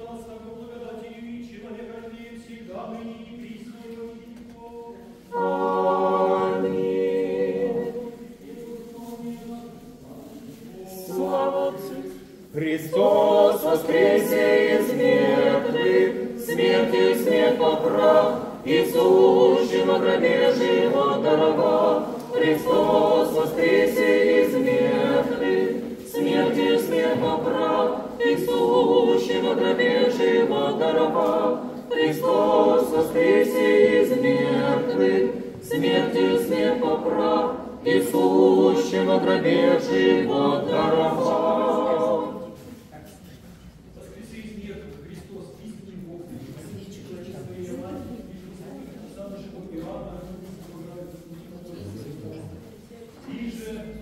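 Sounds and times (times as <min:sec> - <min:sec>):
unaccompanied choir chanting: 0:02.3 - 0:42.9.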